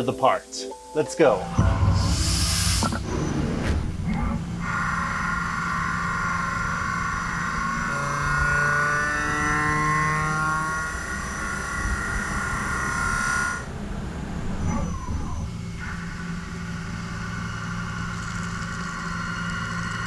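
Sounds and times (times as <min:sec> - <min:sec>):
low tones gliding in pitch: 0:01.2 - 0:13.8
lathe machining high whine: 0:04.1 - 0:20.0.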